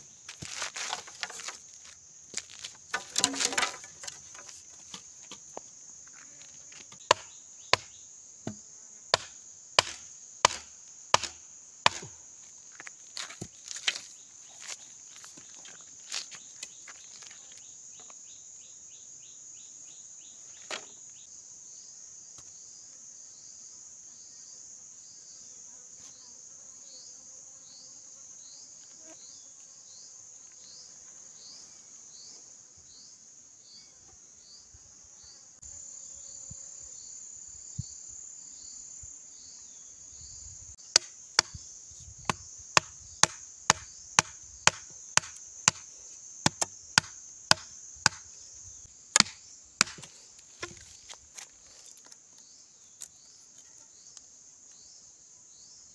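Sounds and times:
insects droning: 0.0s - 55.9s
chopping bamboo: 2.9s - 5.1s, 6.9s - 12.2s, 40.9s - 41.6s, 42.3s - 48.3s, 49.1s - 50.9s.

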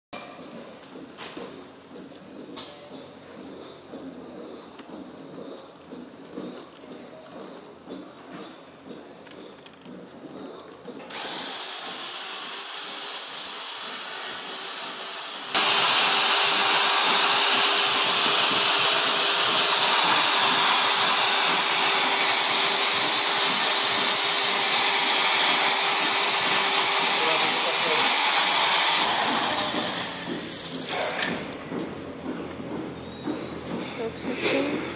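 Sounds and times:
electric drill mixer whining: 11.0s - 31.4s.

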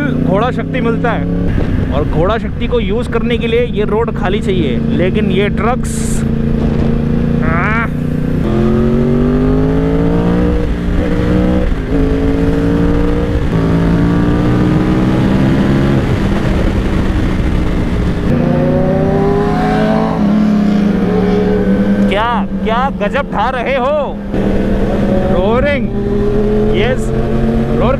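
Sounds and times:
motorcycle engine accelerating: 0.0s - 27.9s
wind rush: 1.2s - 3.5s, 5.1s - 22.8s.

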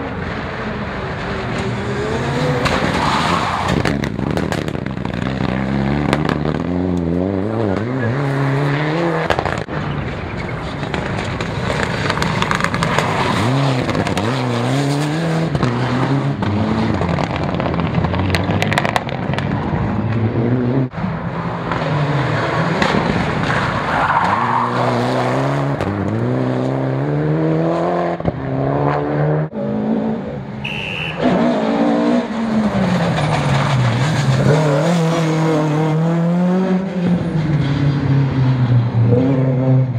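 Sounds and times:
rally car engines revving: 0.0s - 39.9s
tyres skidding on gravel: 9.3s - 15.2s, 32.5s - 35.4s.

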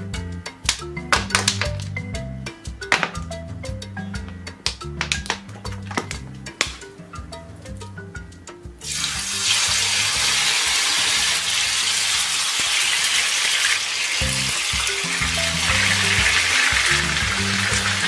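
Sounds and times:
chicken sizzling in hot oil: 8.8s - 18.0s.

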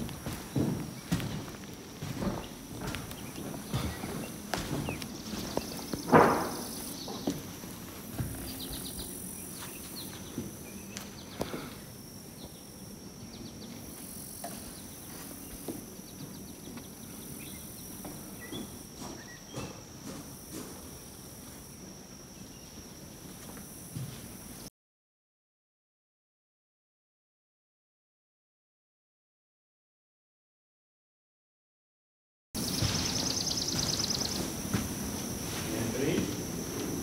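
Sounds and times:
footsteps on wooden floorboards: 0.0s - 11.8s, 13.3s - 21.7s, 22.8s - 24.6s, 32.6s - 37.0s.

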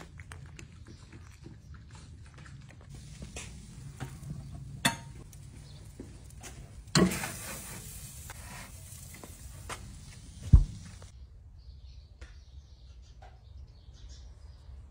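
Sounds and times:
charcoal crackling: 2.9s - 11.1s
skillet clattering on grill grate: 3.0s - 8.2s
short hiss: 7.0s - 11.1s.

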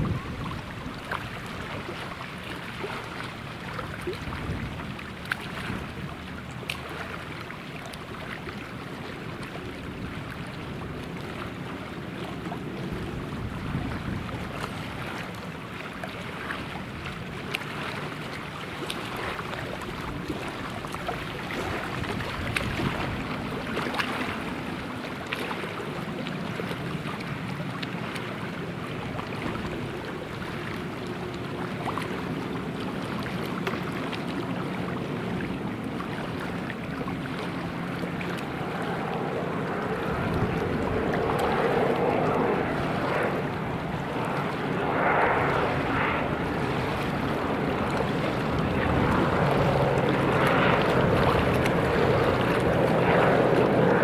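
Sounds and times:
wind noise on microphone: 0.0s - 1.9s, 3.8s - 5.0s, 12.8s - 15.3s, 19.9s - 23.7s, 39.9s - 54.0s
distant turboprop droning: 0.0s - 54.0s.

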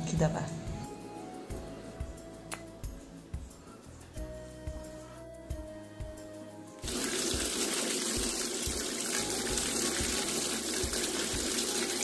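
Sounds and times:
tap water running into steel bowl: 6.8s - 12.0s.

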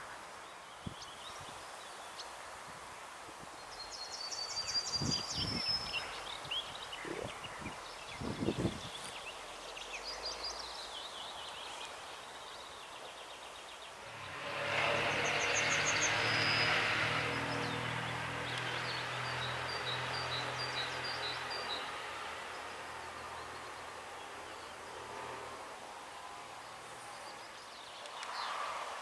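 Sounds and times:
outdoor background noise: 0.0s - 29.0s
songbirds singing trills: 0.4s - 2.4s, 3.5s - 25.3s
approaching vehicle: 14.0s - 27.4s.

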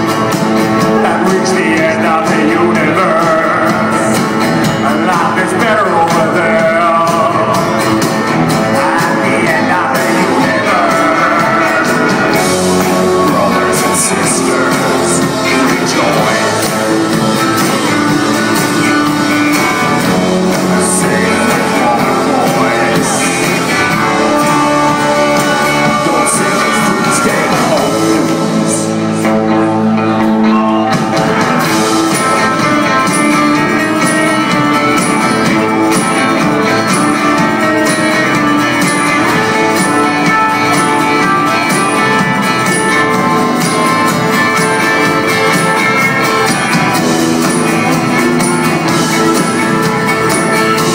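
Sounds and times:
live band playing: 0.0s - 50.9s
voices singing together: 0.9s - 29.0s.

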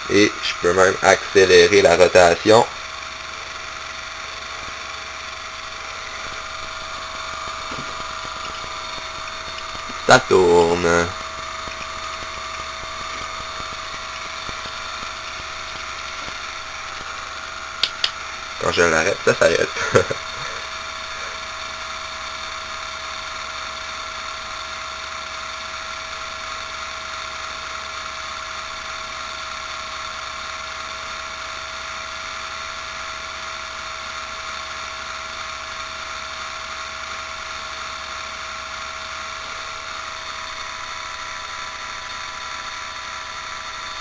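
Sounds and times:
low buzz: 0.0s - 22.9s, 37.2s - 44.0s
steady electrical whine: 0.0s - 44.0s.

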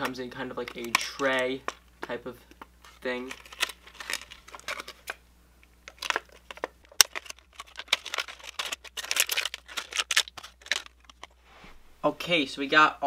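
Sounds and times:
plastic packaging crinkling: 2.5s - 5.2s, 5.8s - 11.4s.

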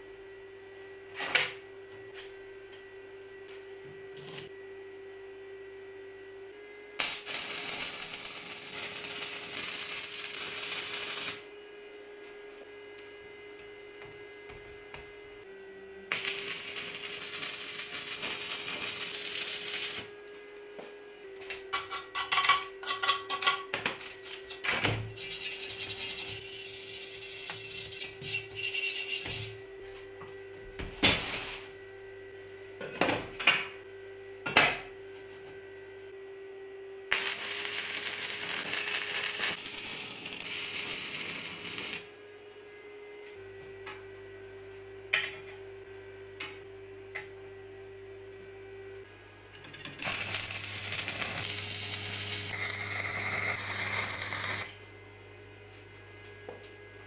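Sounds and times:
arc welding crackling: 4.1s - 4.5s, 7.0s - 15.3s, 16.1s - 20.4s, 24.0s - 28.5s, 37.1s - 42.1s, 49.9s - 54.8s
hand tool scraping welds: 7.0s - 11.4s, 16.1s - 20.1s, 21.7s - 29.6s, 37.1s - 42.0s, 49.7s - 54.8s.

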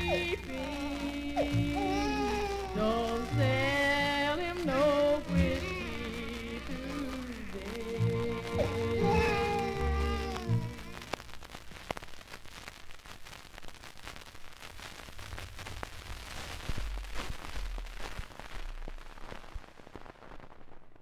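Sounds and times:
record held note: 0.0s - 11.2s
record surface crackle: 0.0s - 21.0s.

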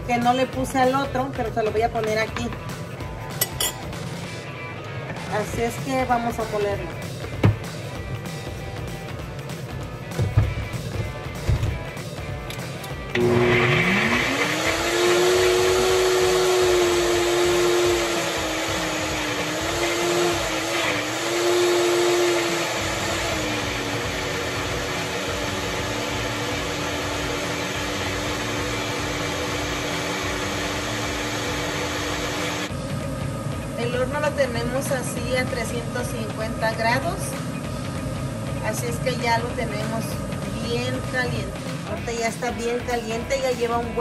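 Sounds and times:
blender motor whining: 12.8s - 41.6s.

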